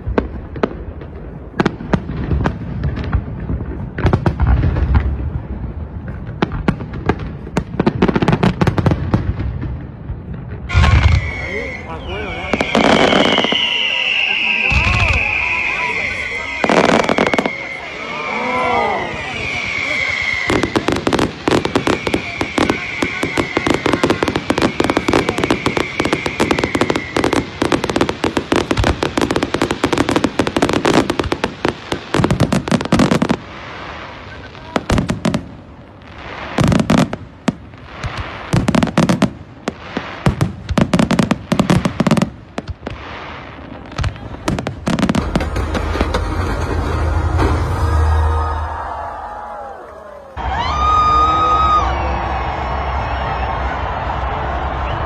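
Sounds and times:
fireworks crackling and banging: 0:00.0 - 0:55.0.

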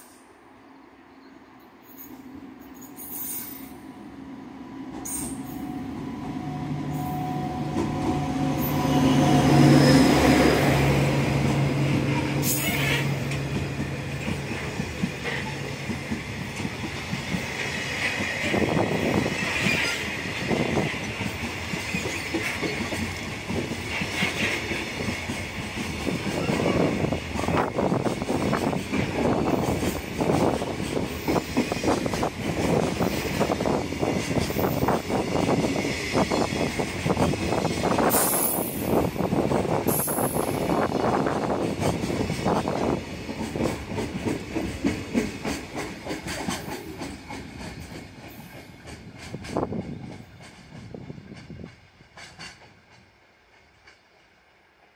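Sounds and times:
train wheels clattering over rail joints: 0:12.7 - 0:54.2.

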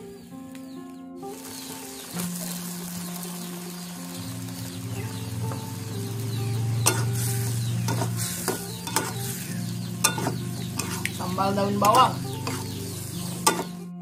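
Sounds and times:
oil sizzling in a wok: 0:01.2 - 0:13.9
metal spatula scraping a wok: 0:06.8 - 0:11.2, 0:11.8 - 0:13.8.

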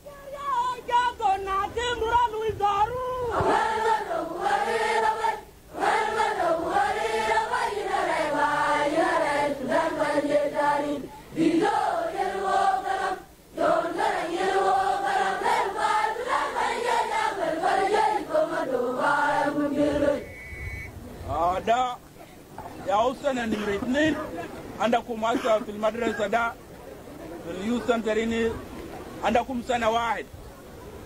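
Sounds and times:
group of high voices singing: 0:03.2 - 0:20.3.

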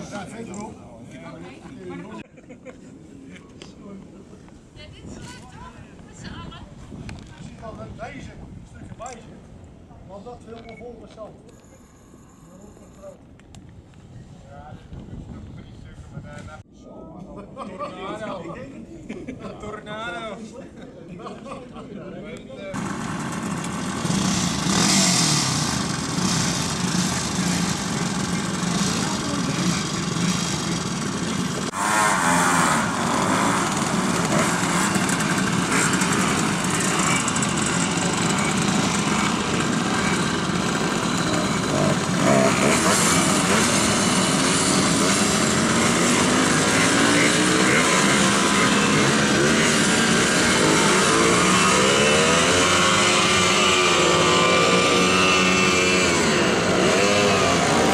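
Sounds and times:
moped engines idling and revving: 0:22.7 - 0:57.9.

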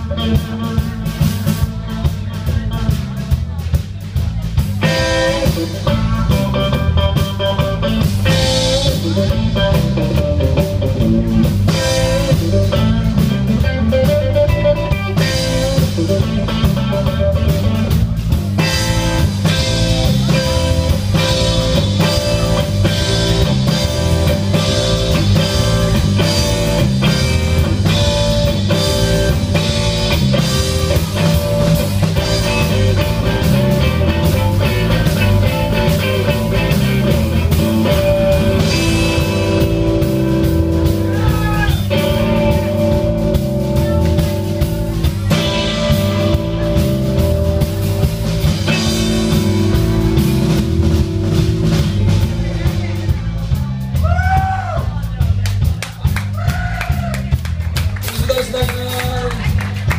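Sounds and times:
bass guitar: 0:00.0 - 0:59.9
drum kit: 0:00.0 - 0:59.9
electric guitar: 0:00.0 - 0:59.9.

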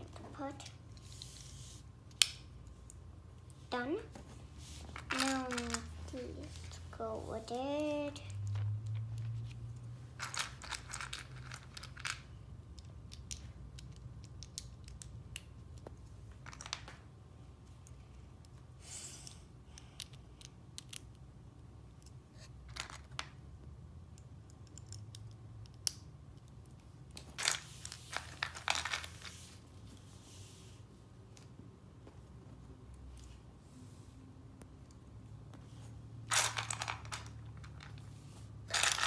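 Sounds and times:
plastic toy bricks clicking and rattling: 0:10.2 - 0:15.4, 0:36.3 - 0:38.0, 0:38.7 - 0:39.0.

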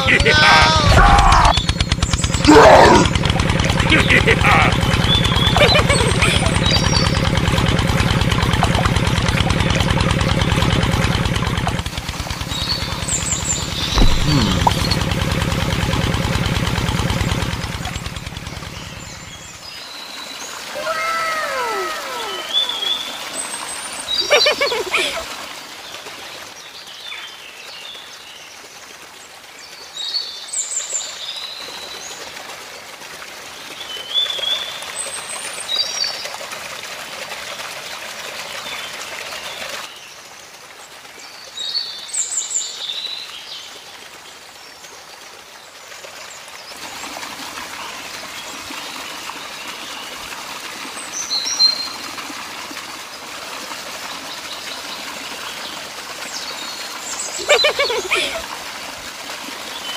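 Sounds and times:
birds chirping: 0:00.0 - 0:09.2, 0:09.9 - 0:15.7, 0:17.1 - 0:19.7, 0:20.4 - 0:23.2, 0:57.2 - 0:58.4.

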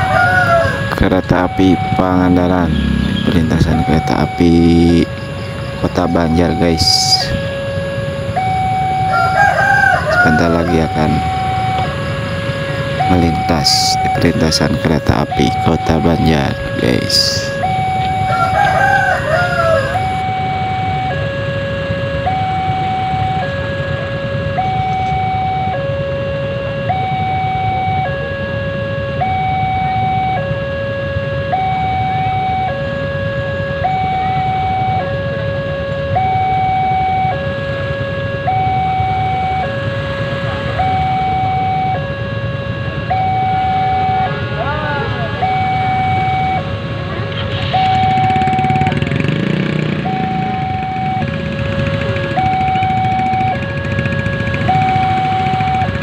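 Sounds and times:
motorcycles idling: 0:00.0 - 0:21.5, 0:38.0 - 0:56.0
two-tone electronic crossing alarm: 0:00.0 - 0:56.0.

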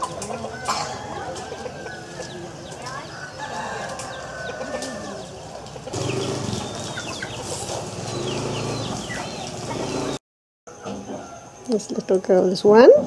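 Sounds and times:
chickens calling: 0:00.0 - 0:10.2.

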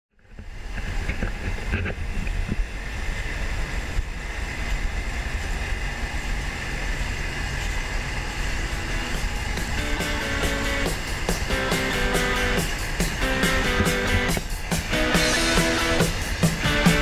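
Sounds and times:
wind buffeting microphone: 0:00.2 - 0:17.0
combine harvester running: 0:03.9 - 0:17.0.

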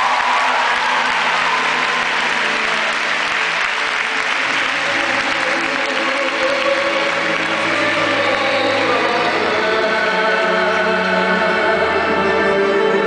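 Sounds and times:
large audience applauding: 0:00.0 - 0:09.0
show music: 0:00.0 - 0:13.0.

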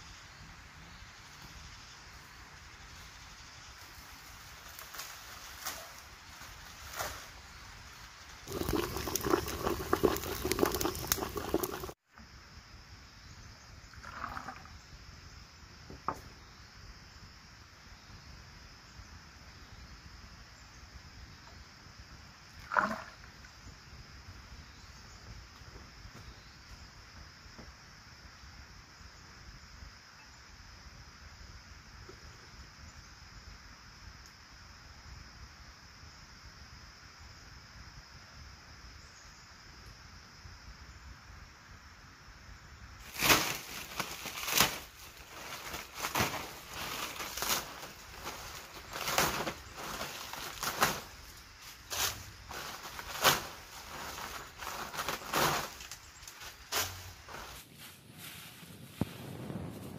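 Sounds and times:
liquid pouring into ceramic bowl: 0:08.5 - 0:12.0
loud liquid splash: 0:08.5 - 0:12.0.

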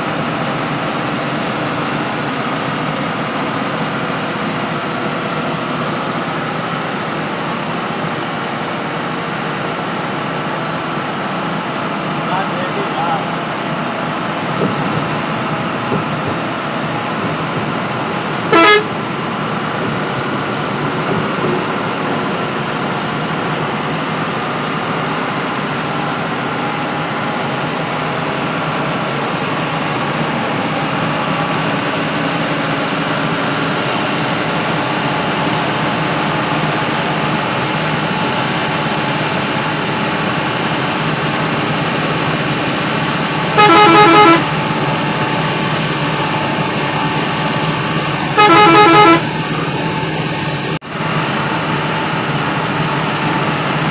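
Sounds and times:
bus engine and road noise: 0:00.0 - 0:53.9
bus horn blasts: 0:18.2 - 0:19.2, 0:43.3 - 0:45.8, 0:48.2 - 0:49.5.

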